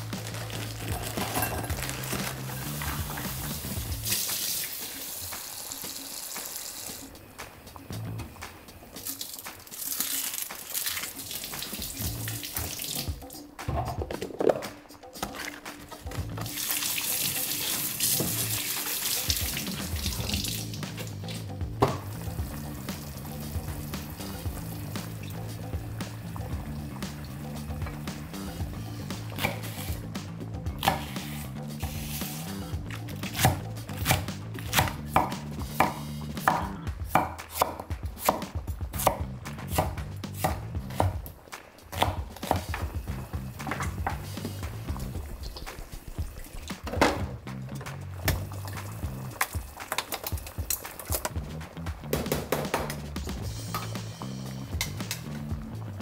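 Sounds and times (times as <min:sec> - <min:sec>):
soft background music: 0:00.0 - 0:56.0
faucet running water: 0:01.7 - 0:07.1, 0:09.0 - 0:13.5, 0:16.1 - 0:28.7, 0:42.4 - 0:47.4, 0:48.0 - 0:51.5
knife chopping on wooden board: 0:33.3 - 0:41.2, 0:42.0 - 0:42.8.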